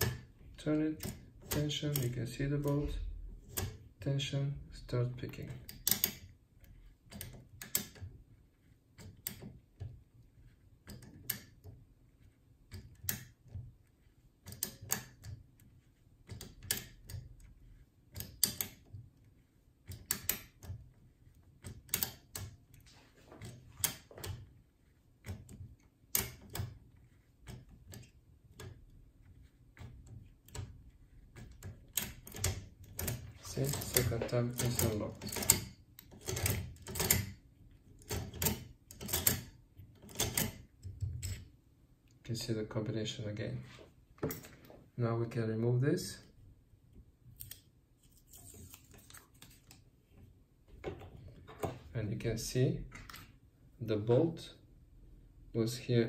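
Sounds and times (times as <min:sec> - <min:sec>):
lock clicking metallically: 0:05.5 - 0:06.3, 0:21.6 - 0:22.6, 0:31.4 - 0:37.4, 0:38.0 - 0:41.5.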